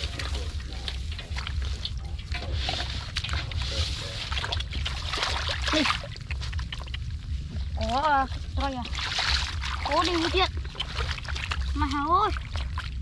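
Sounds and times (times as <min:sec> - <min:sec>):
low rumble: 0:00.0 - 0:13.0
muddy water sloshing and splashing: 0:00.0 - 0:13.0.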